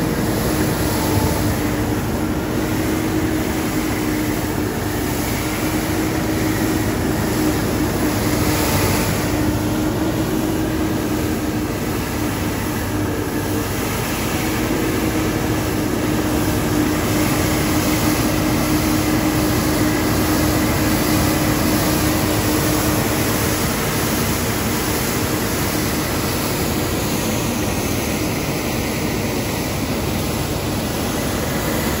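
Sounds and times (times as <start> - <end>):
street sweeper running: 0.0 - 32.0.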